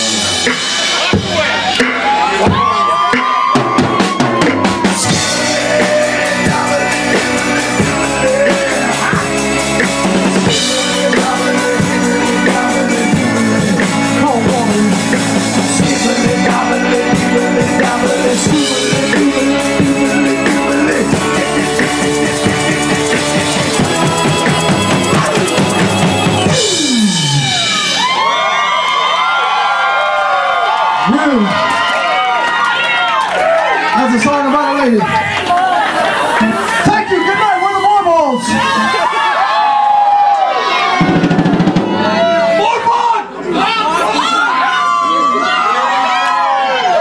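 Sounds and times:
bass drum and snare beat: 0.0 - 28.2, 41.0 - 42.6
live band playing amplified music: 0.0 - 30.3, 32.5 - 47.0.

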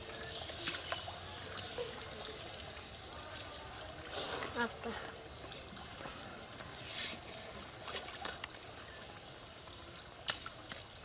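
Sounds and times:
water trickling off a net: 0.0 - 5.0.

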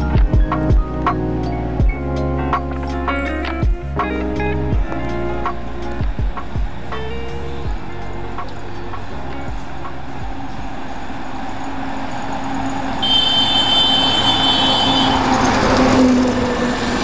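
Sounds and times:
high-pitched steady tone: 6.3 - 15.7
tanker truck passing: 6.8 - 17.0.

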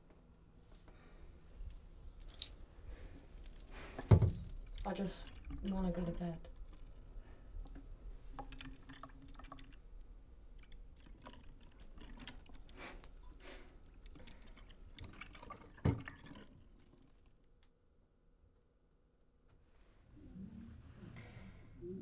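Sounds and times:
water pouring and splashing: 2.1 - 7.0, 7.6 - 17.4.

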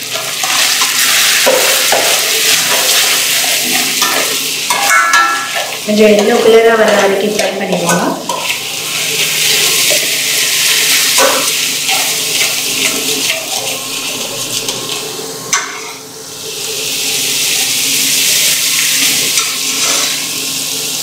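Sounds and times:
spices sizzling in oil: 0.0 - 21.0
metal spoon scraping pan: 0.1 - 10.2, 19.3 - 20.3.

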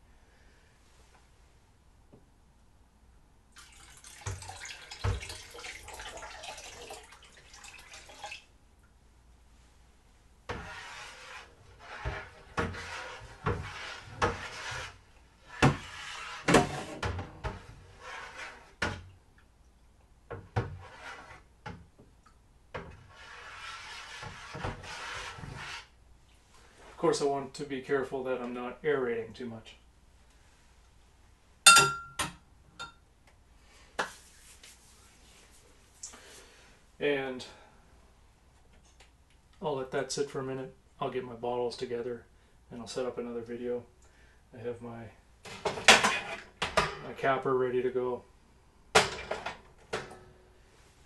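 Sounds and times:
liquid pouring and splashing: 3.5 - 8.5.

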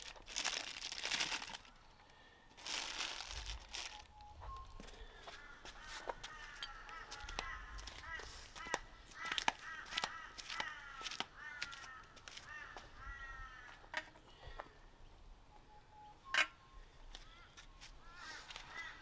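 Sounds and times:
bird calling: 3.8 - 14.8, 15.6 - 19.0.

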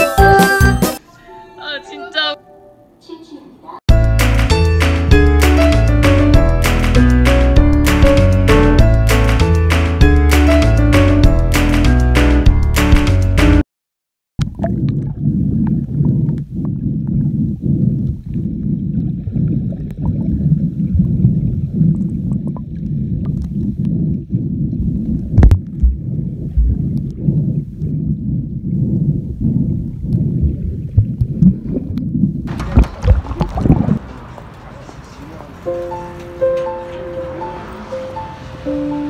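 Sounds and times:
background music: 0.0 - 13.6, 35.7 - 39.0
underwater churning rumble: 14.4 - 34.4.

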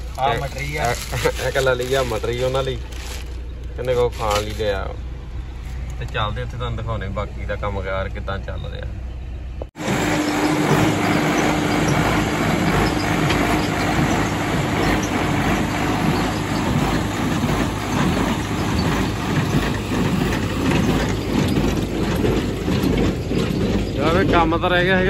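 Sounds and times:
tractor engine running: 0.0 - 8.0, 9.3 - 25.0
baler clattering: 10.2 - 25.0.

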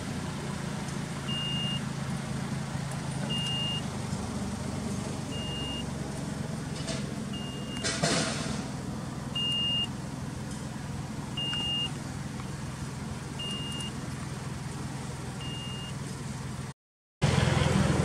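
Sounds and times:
car engine idling: 0.0 - 18.0
short high beeps: 3.3 - 3.8, 5.3 - 5.8, 9.4 - 9.9, 11.4 - 11.9, 13.4 - 13.9, 15.4 - 15.9.

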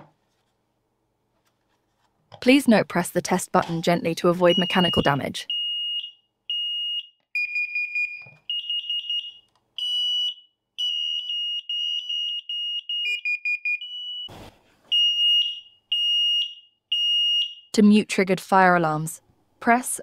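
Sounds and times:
shrill alarm beeps: 4.4 - 14.3, 14.9 - 17.7.

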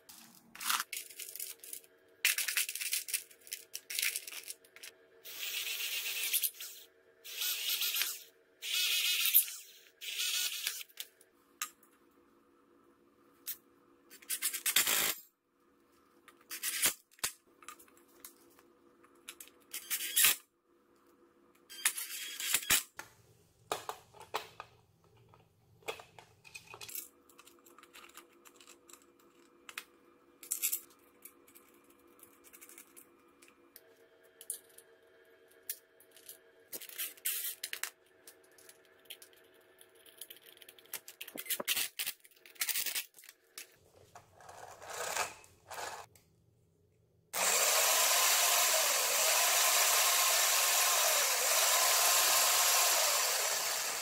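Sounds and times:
metal parts clinking and rattling: 0.1 - 4.9, 36.0 - 43.7.

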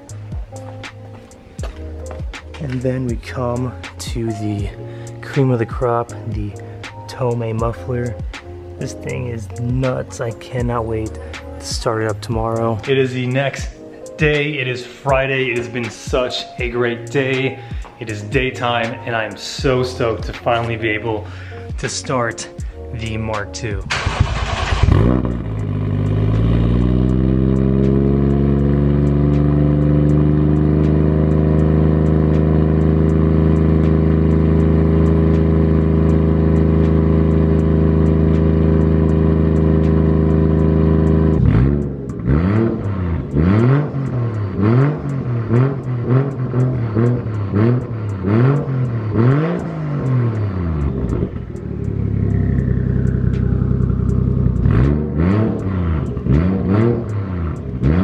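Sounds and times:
car engine revving: 0.0 - 58.0
car engine idling in a garage: 49.6 - 54.8.

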